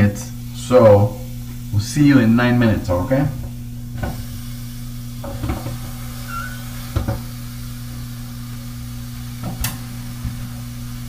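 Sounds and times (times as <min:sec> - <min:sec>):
steady low hum: 0:00.0 - 0:11.0
chicken sizzling in grill: 0:03.8 - 0:11.0.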